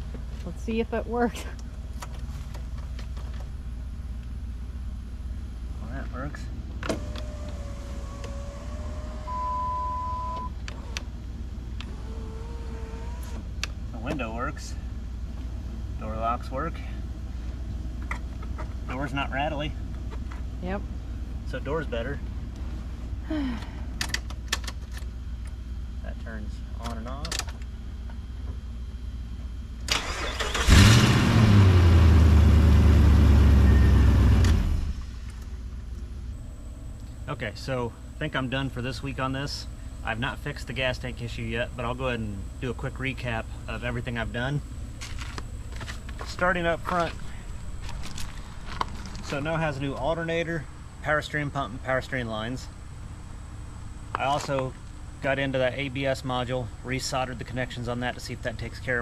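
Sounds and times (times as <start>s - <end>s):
car engine starting and running: 0.0s - 28.2s, 29.6s - 58.8s
power window motor running: 6.8s - 11.1s, 11.8s - 13.5s
steady electronic beep: 9.3s - 10.6s.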